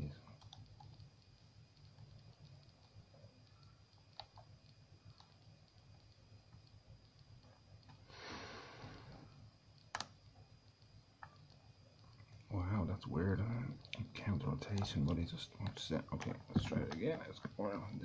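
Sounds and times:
soft breath: 8.0 - 9.4.

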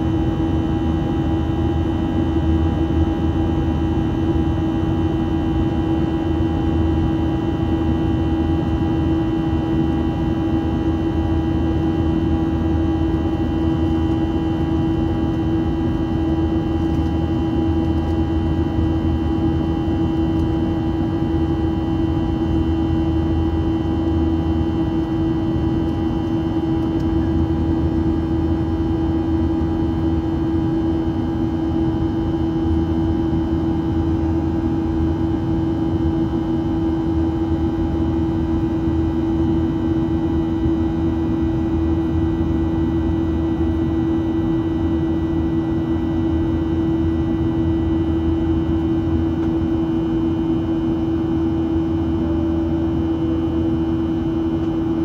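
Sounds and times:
constant hum: 0.0 - 55.0
airflow rush and engine drone: 11.9 - 55.0.

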